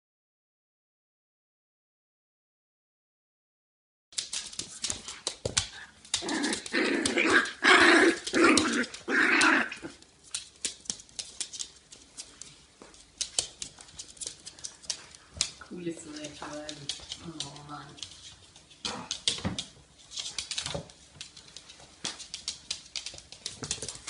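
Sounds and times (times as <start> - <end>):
claws clicking on floorboards: 4.2 - 24.0
dogs growling and barking: 5.8 - 10.0.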